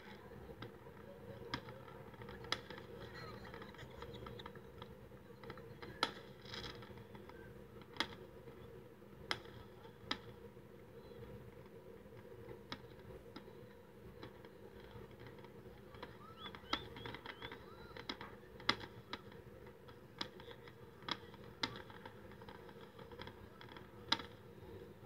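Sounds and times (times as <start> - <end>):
distant fireworks popping: 0.0 - 25.0.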